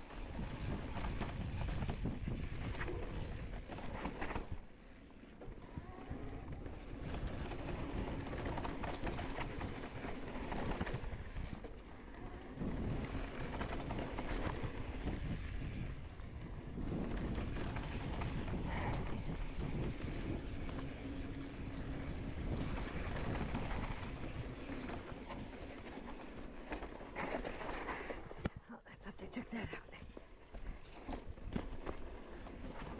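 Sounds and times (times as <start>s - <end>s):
bike rattling over bumps: 0.0s - 28.4s, 30.5s - 32.9s
tyres rolling over dirt and stones: 6.5s - 28.4s
wind rushing over microphone: 12.6s - 20.9s.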